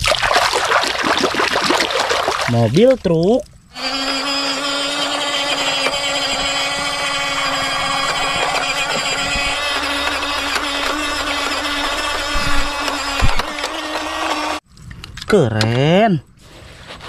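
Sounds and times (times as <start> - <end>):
toy truck motor whirring: 3.7 - 14.6.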